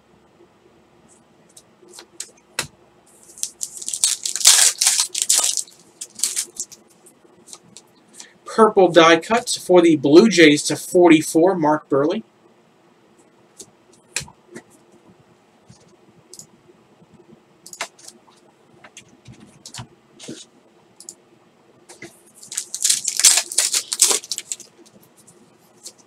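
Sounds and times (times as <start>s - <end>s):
wrapper crinkling and tearing: 3.3s - 6.8s, 22.4s - 24.9s.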